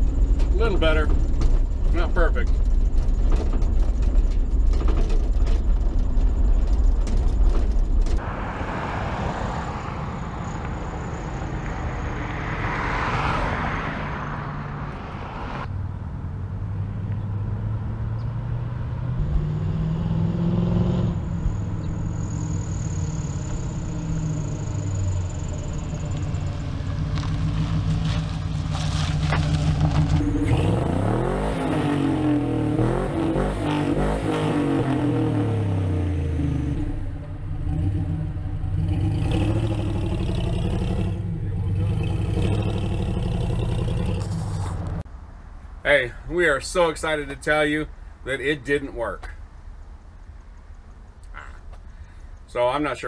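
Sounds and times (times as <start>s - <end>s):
pickup truck engine revving: 16.6s - 45.0s.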